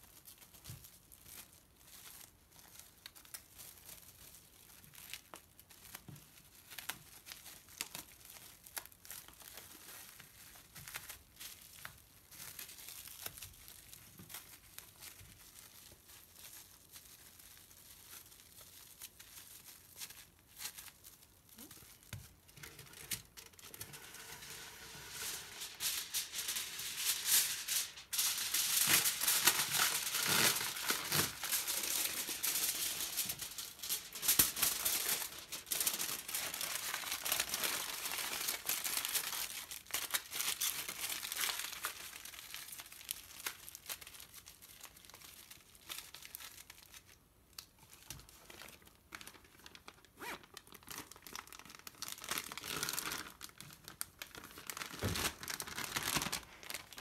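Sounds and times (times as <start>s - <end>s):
plastic bag rustling: 0.0s - 47.2s, 47.8s - 57.0s
aluminium foil crinkling: 0.0s - 57.0s.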